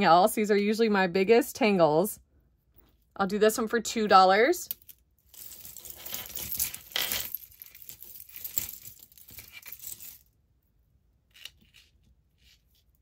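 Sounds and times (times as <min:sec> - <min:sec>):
beaded necklaces clinking: 0:04.7 - 0:10.3.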